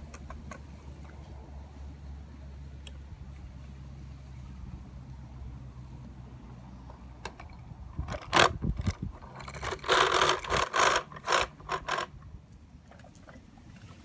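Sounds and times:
toy truck parts scraping and clicking: 7.2s - 12.3s.

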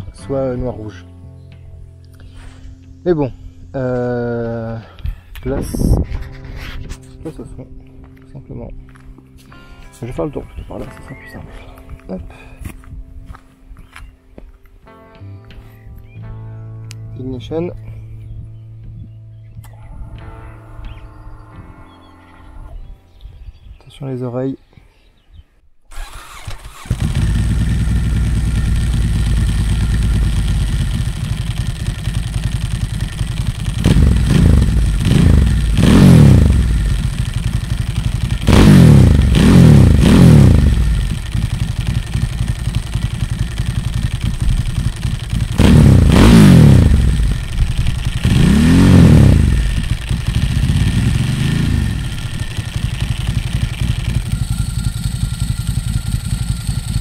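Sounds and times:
starter cranking: 25.9s - 57.0s
engine throttle blips: 26.0s - 57.0s
motorcycle engine idling loudly: 26.8s - 57.0s.

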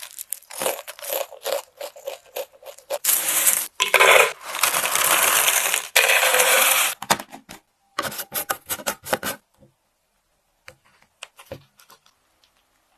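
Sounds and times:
popcorn pouring into plastic jar: 3.0s - 7.0s.

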